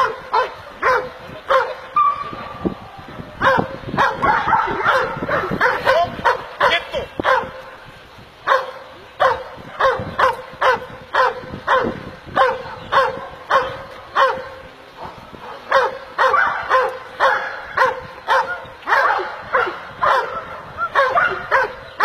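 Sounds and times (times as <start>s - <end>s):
dog barking: 0.0s - 2.4s, 3.4s - 7.6s, 8.4s - 22.0s.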